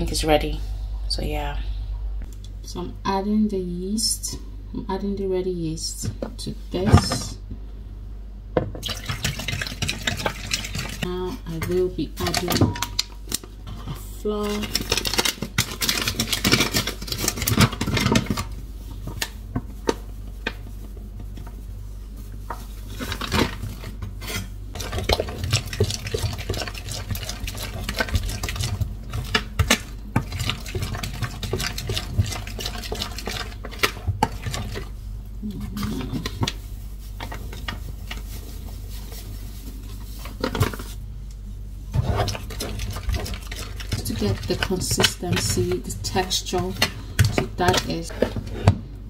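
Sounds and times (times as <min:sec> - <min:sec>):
metal utensil stirring dough: 0:22.9 - 0:34.9, 0:42.0 - 0:48.8
utensil scraping a bowl: 0:42.0 - 0:48.8.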